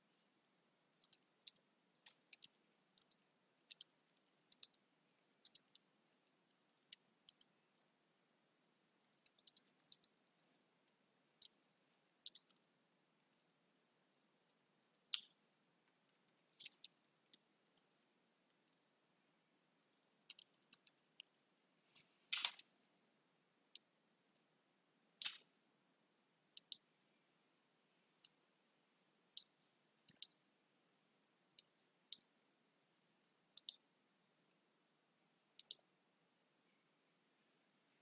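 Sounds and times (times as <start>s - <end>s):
keyboard keys clicking: 1.0s - 4.8s, 5.4s - 7.9s, 9.2s - 11.6s, 12.2s - 12.6s, 20.2s - 21.4s.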